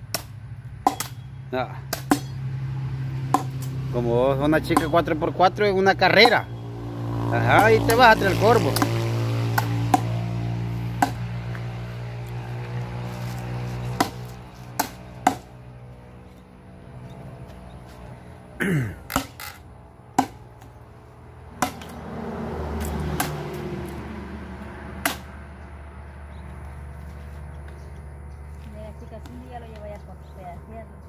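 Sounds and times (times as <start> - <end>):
machete chopping wood: 0.1 - 1.2, 1.9 - 2.5, 3.3 - 3.8, 4.7 - 5.0, 8.6 - 10.2, 11.0 - 11.3, 13.4 - 15.6, 19.1 - 19.5, 20.2 - 20.7, 21.6 - 22.0, 22.8 - 23.7, 25.0 - 25.4.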